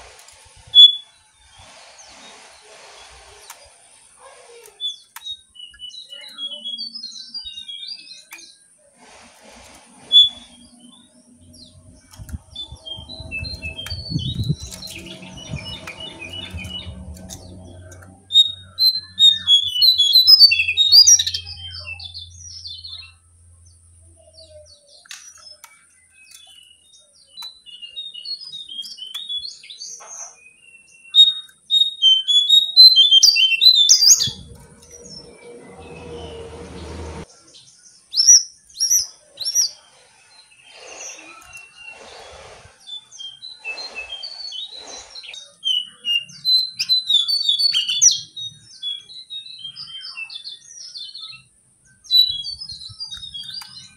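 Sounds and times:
rustling with low rumble: 9.0s - 19.1s, 33.9s - 37.3s
songbird singing high notes: 10.1s - 23.2s, 31.2s - 37.2s.

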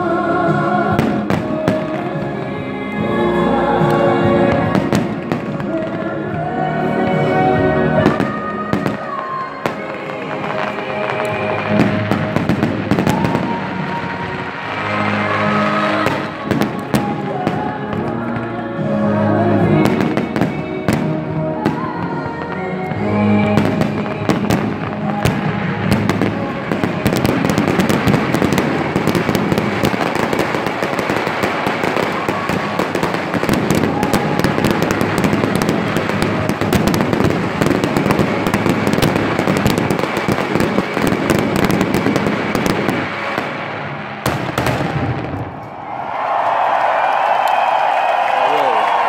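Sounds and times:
fireworks crackling and banging: 0.0s - 3.1s, 3.8s - 45.8s
show music: 0.0s - 49.0s.

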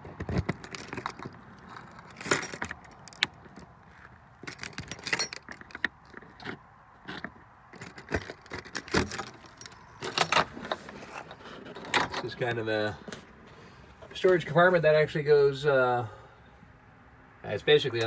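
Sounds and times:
keys jangling: 0.3s - 3.4s, 4.4s - 5.8s, 7.7s - 10.5s.

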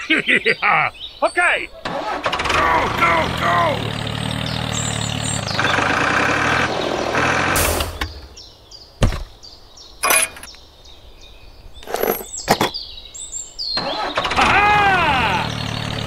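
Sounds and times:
tractor engine running: 1.8s - 8.4s, 13.8s - 16.0s.

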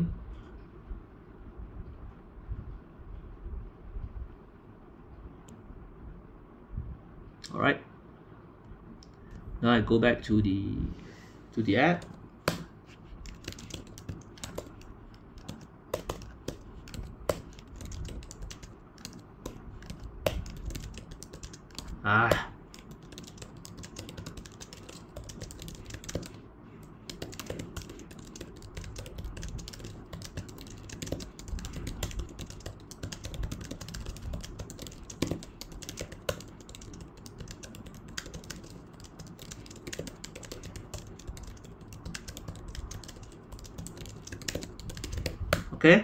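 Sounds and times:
keyboard typing clicks: 12.0s - 45.7s.

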